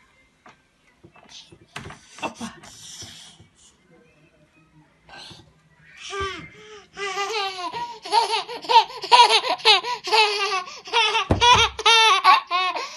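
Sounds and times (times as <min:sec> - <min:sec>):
toddler laughing: 0:07.0 - 0:12.9.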